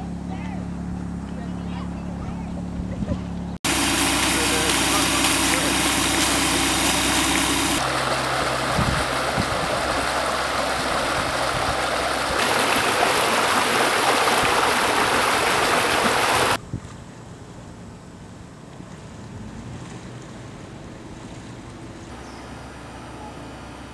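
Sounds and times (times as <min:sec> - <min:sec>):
low engine hum: 0:00.0 - 0:23.9
water rushing from hose: 0:03.6 - 0:16.6.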